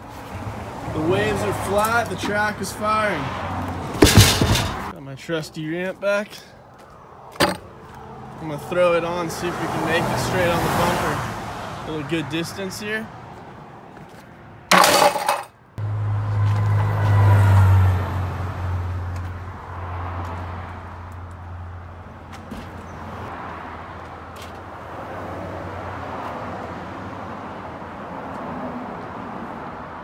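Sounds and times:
metal ramp clattering: 0:04.0 - 0:04.9, 0:07.4 - 0:07.7, 0:14.7 - 0:15.5.

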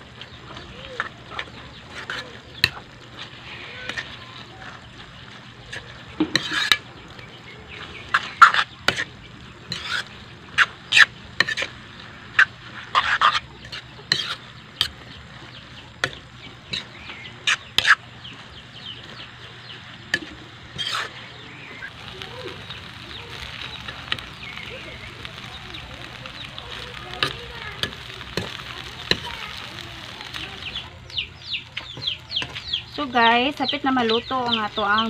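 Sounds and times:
metal spatula scraping a wok: 0:00.4 - 0:30.9.

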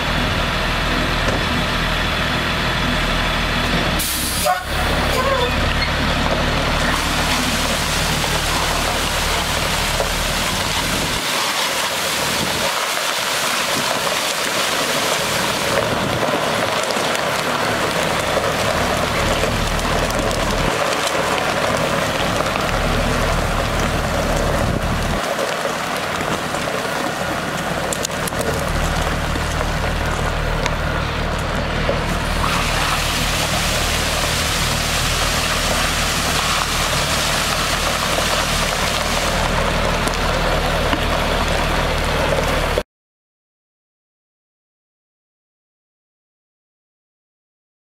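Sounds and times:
low diesel engine drone: 0:00.0 - 0:42.8
water spraying onto gravel: 0:04.0 - 0:05.3, 0:06.2 - 0:42.8.

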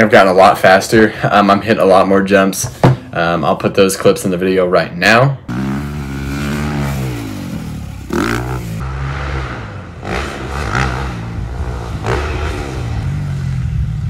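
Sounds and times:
dirt bike engine revving: 0:05.5 - 0:14.0.

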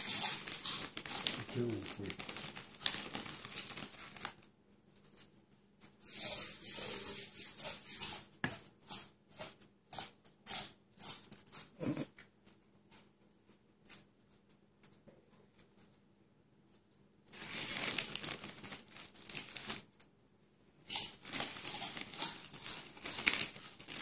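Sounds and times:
chip bag crinkling: 0:00.0 - 0:04.5, 0:17.3 - 0:20.0, 0:20.9 - 0:24.0.

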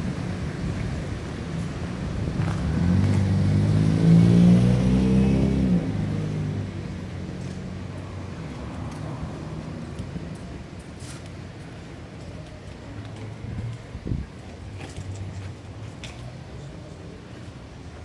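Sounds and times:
vehicle engine passing by: 0:02.4 - 0:07.8.

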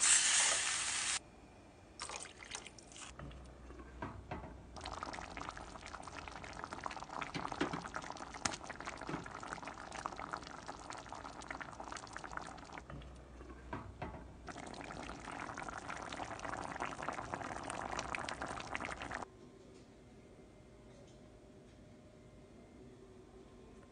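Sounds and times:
stew bubbling in a pot: 0:02.0 - 0:19.2.

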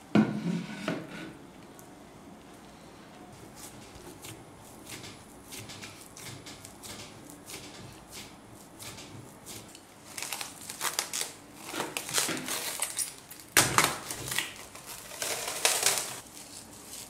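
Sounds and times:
hands kneading dough: 0:01.6 - 0:17.0
cling film crinkling: 0:09.7 - 0:17.0.

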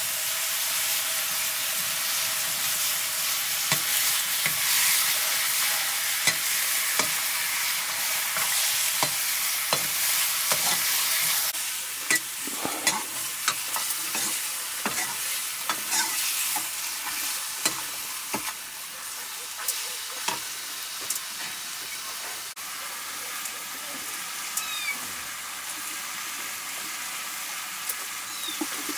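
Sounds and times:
meat sizzling in a wok: 0:00.0 - 0:28.9
metal ladle scraping a pan: 0:12.1 - 0:17.8.

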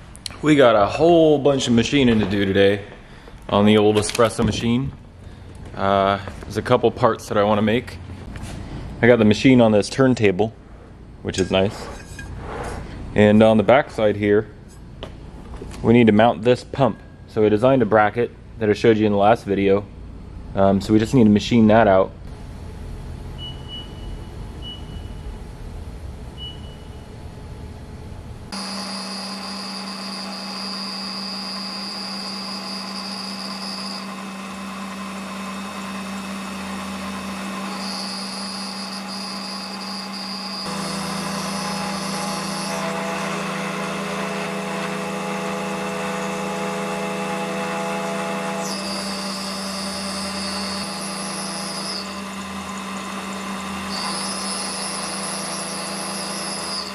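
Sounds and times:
short beeps: 0:23.4 - 0:25.3, 0:26.4 - 0:27.0
high-pitched cutting whine: 0:28.5 - 0:56.9
milling machine spindle running: 0:28.6 - 0:56.9.

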